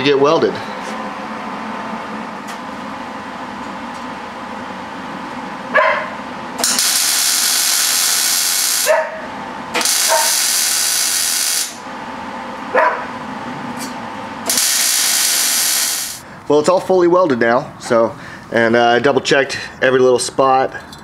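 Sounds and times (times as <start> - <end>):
steady hum: 0.0 - 21.0
welder arc crackling and hissing: 6.6 - 9.0, 9.8 - 11.9, 14.4 - 16.2.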